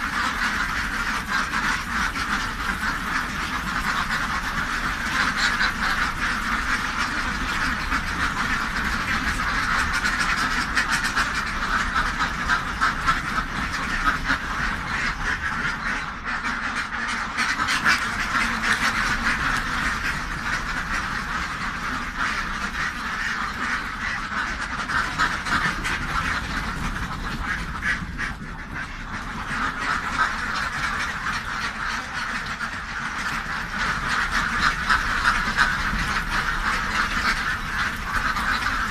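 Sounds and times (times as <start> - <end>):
flock of ducks quacking: 0.0 - 38.9.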